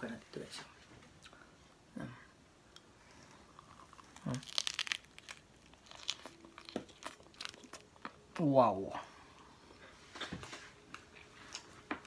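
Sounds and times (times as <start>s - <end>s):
crunching bite into pizza: 3.6s - 7.8s.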